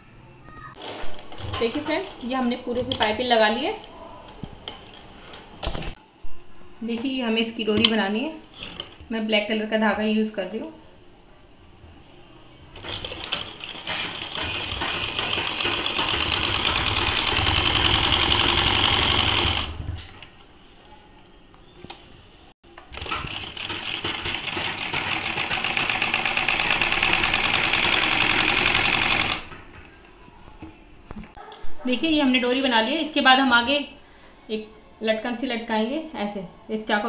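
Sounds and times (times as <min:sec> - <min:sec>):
sewing machine stitching: 0:12.8 - 0:19.9, 0:22.9 - 0:29.5.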